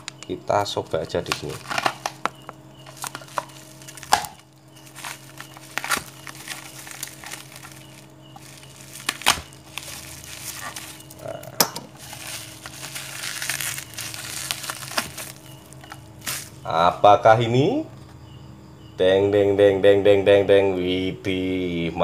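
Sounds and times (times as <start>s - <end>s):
plastic wrapping crinkling: 0.0s - 16.6s
utility knife cutting plastic: 2.8s - 16.5s.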